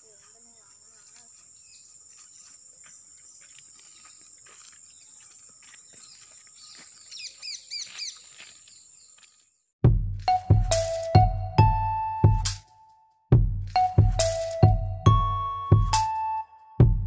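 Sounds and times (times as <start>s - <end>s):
bird chirping: 0.0s - 9.6s.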